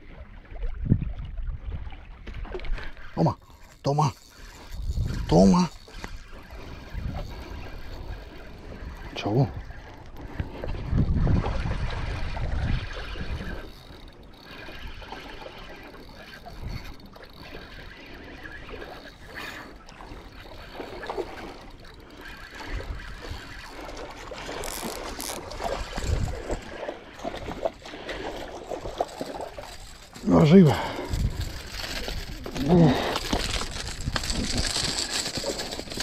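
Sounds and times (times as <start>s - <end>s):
water sloshing: 1.2s - 36.0s
fishing reel winding: 2.8s - 10.7s, 12.7s - 36.0s.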